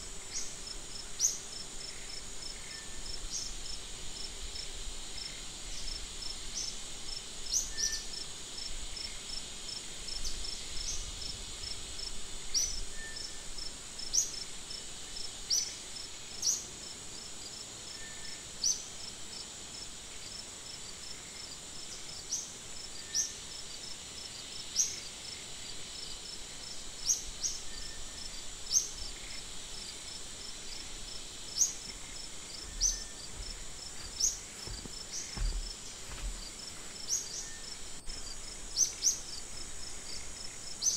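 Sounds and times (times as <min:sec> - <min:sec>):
insect high-pitched drone: 0:21.0 - 0:40.9.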